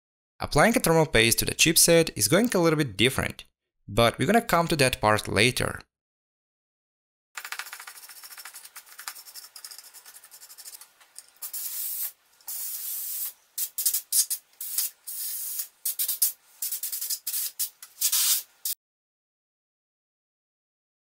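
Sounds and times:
brush scrubbing circuit board: 7.4 - 18.5
compressed air blasts: 11.4 - 18.8.

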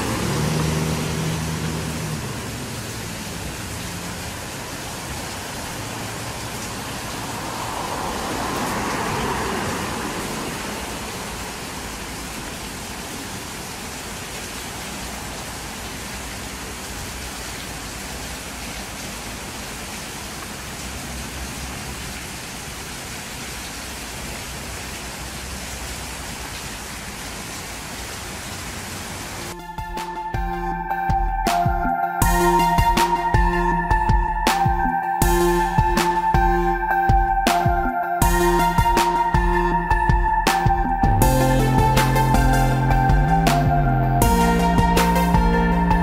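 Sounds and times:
water splashing down fountain: 0.0 - 29.6.

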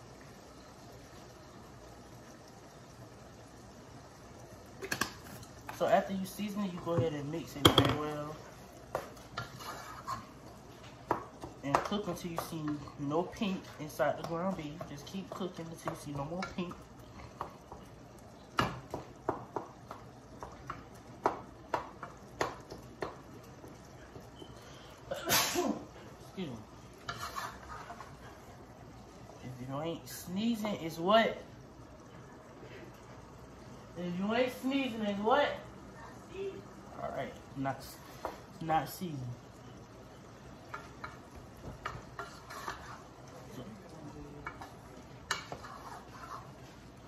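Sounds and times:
meat sizzling: 0.0 - 47.0
utensil scraping a pan: 9.2 - 10.4, 27.0 - 28.4, 41.8 - 43.2, 44.5 - 46.8
person sneezing: 25.1 - 25.8.

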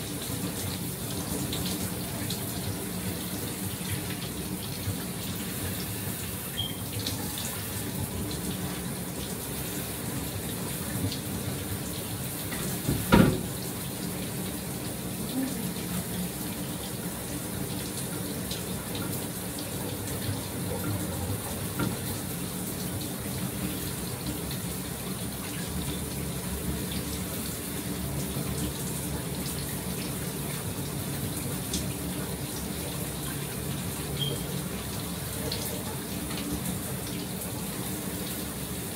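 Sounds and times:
shower water running: 0.0 - 38.9.

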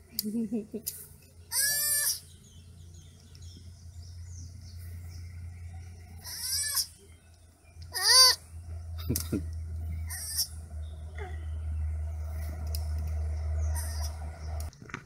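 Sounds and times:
baby sloth calling: 1.5 - 2.4, 6.1 - 7.1, 7.9 - 8.5, 10.0 - 11.4, 13.6 - 14.2.

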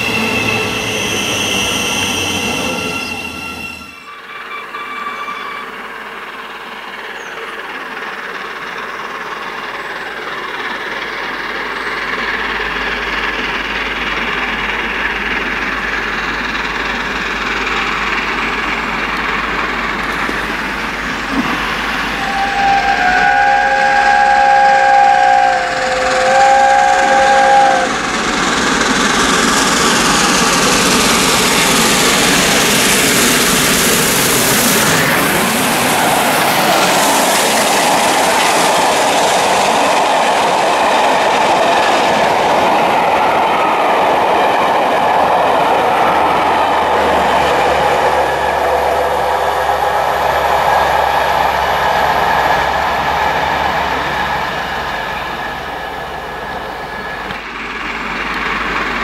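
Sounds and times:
steam whistle blasts: 0.0 - 5.9, 22.1 - 28.1, 47.9 - 51.8
steam locomotive running: 0.0 - 59.0
train passing in a loud rush: 0.0 - 59.0.

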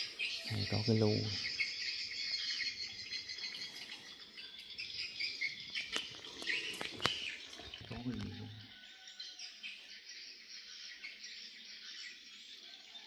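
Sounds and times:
crickets chirping: 0.0 - 8.8
birds chirping: 0.0 - 13.0.

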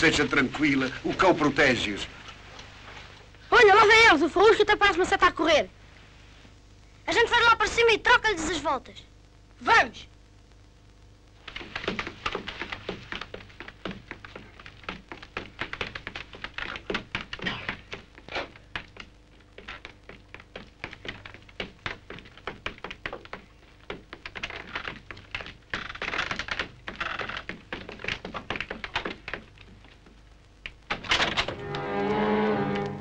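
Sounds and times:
footsteps on wooden stairs: 11.6 - 30.2.

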